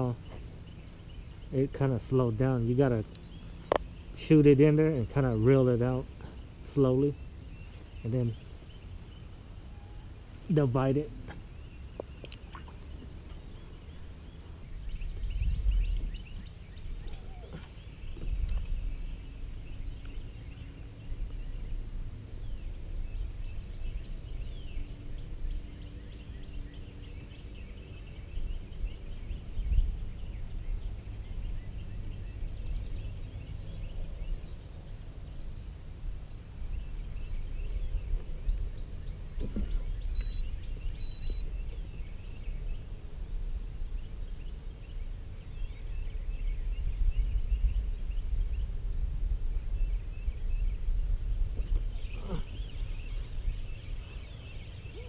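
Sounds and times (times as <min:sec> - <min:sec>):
wind rumble on microphone: 0:00.0 - 0:55.0
faint bird chirps: 0:11.5 - 0:21.8, 0:36.2 - 0:43.6, 0:51.6 - 0:55.0.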